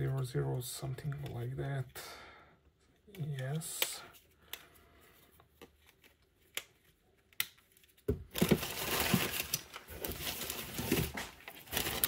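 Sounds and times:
newspaper rustling and crinkling: 7.6s - 12.0s.

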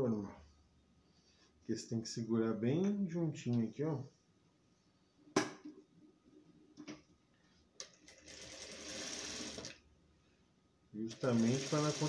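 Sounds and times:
sewing machine stitching: 8.1s - 9.7s, 11.1s - 12.0s.

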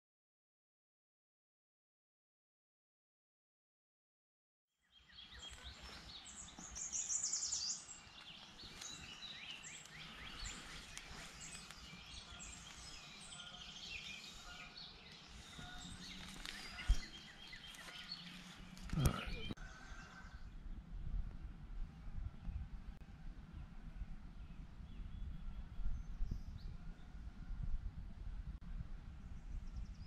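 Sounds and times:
songbirds singing: 4.8s - 27.7s, 29.0s - 30.0s.

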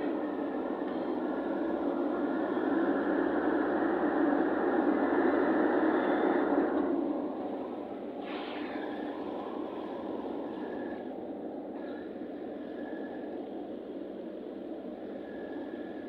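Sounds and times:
road and engine rush: 0.0s - 16.0s.

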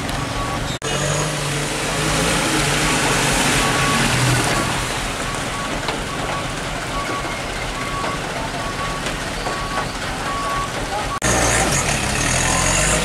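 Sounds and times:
reversing beeper: 0.0s - 2.1s, 2.7s - 13.0s
diesel truck engine: 0.0s - 13.0s
tyres churning in mud: 0.0s - 13.0s.

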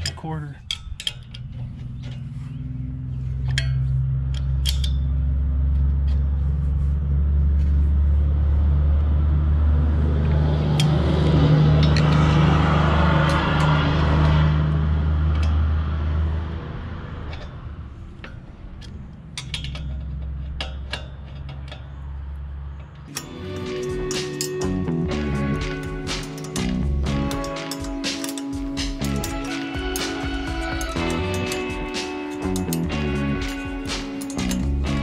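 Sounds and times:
wrenches clinking on a nut: 0.0s - 2.7s, 3.4s - 5.3s, 18.2s - 35.0s
vehicle passing: 1.2s - 35.0s.

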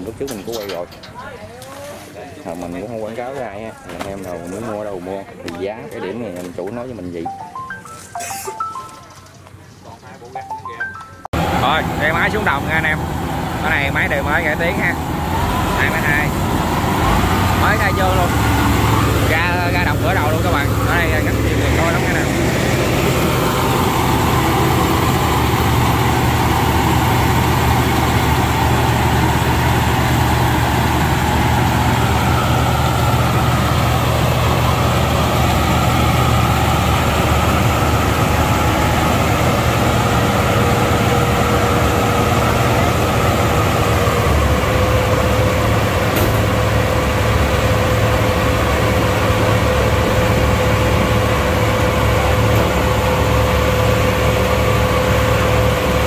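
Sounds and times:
diesel engine running: 11.4s - 56.0s.

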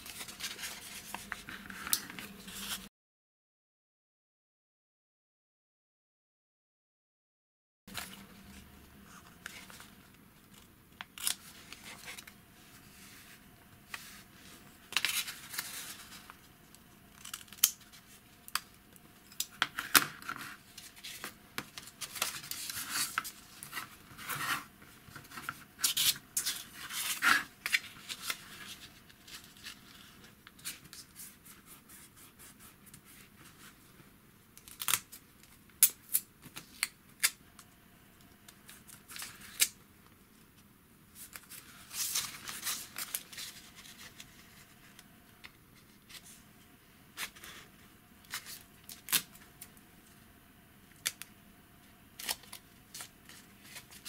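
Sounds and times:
paper rustling and creasing: 0.0s - 2.9s, 7.9s - 16.5s, 19.3s - 33.8s, 41.2s - 45.0s, 52.2s - 54.0s.

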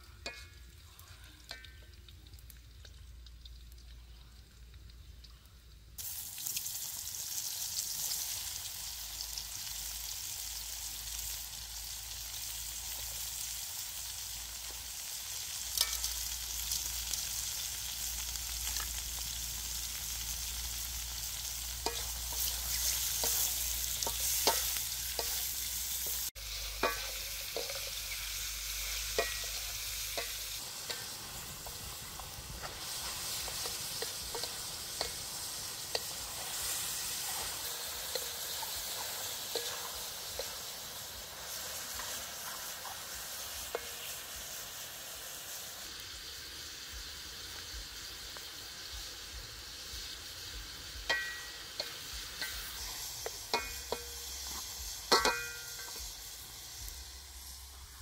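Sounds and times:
vegetables sizzling in a wok: 0.0s - 58.0s
spatula scraping a wok: 15.4s - 44.8s, 51.1s - 56.4s.

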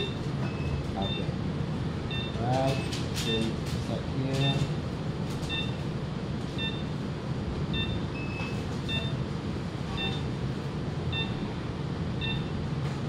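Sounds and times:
longer beep: 0.0s - 1.4s, 2.1s - 2.4s, 6.6s - 6.9s, 7.7s - 9.2s, 9.9s - 10.3s, 11.1s - 11.5s, 12.2s - 12.6s
short electronic beeps: 0.0s - 1.4s, 2.1s - 3.6s, 4.4s - 4.8s, 5.5s - 5.8s, 6.6s - 7.0s, 7.7s - 9.2s, 9.9s - 10.4s, 11.1s - 11.5s, 12.2s - 12.6s
machine hum: 0.0s - 13.0s.

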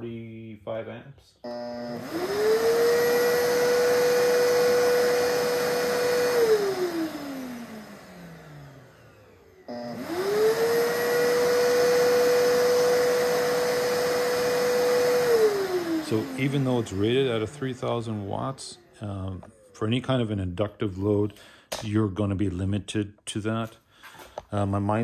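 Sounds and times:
vacuum cleaner motor whine: 1.4s - 20.5s.

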